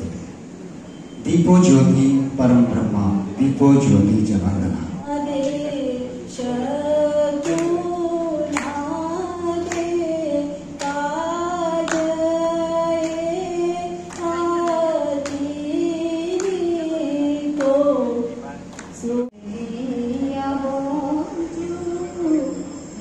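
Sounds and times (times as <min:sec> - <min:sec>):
steady low hum: 0:00.0 - 0:23.0
women singing over pa: 0:05.0 - 0:18.3.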